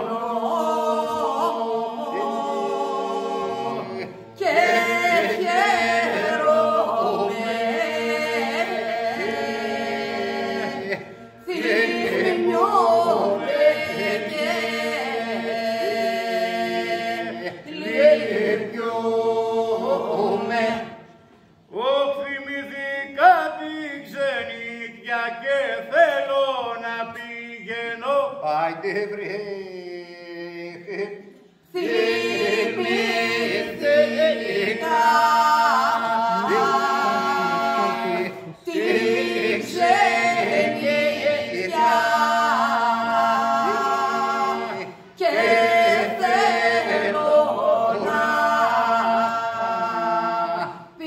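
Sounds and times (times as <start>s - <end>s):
voices singing a drone: 0.0s - 20.9s.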